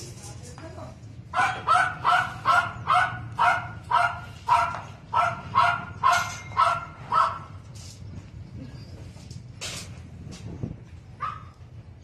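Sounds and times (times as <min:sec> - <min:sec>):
dog barking: 0:01.3 - 0:07.5, 0:11.2 - 0:11.5.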